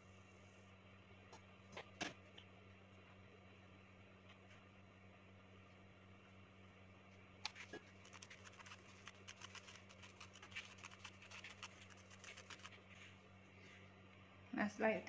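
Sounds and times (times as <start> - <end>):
low steady hum: 0.0 - 15.0
spoon scratching flour through sieve: 7.5 - 13.2.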